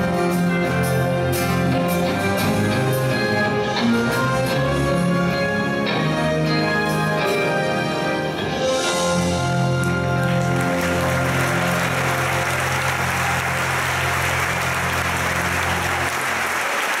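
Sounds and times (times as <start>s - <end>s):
audience applause: 9.6s - 17.0s.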